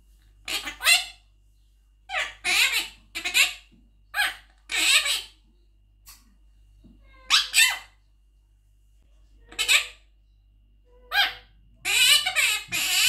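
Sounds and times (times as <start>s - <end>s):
parrot talking: 0.4s - 1.2s, 2.1s - 5.4s, 7.0s - 8.0s, 9.5s - 10.0s, 10.9s - 13.0s.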